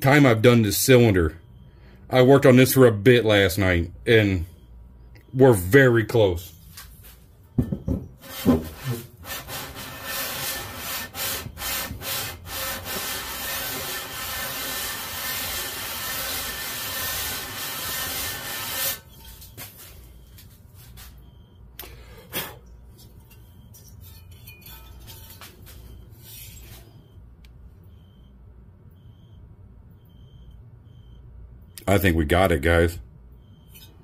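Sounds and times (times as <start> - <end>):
metal block knock: 7.6 - 8.6
metal rasping on sandpaper: 8.2 - 19.1.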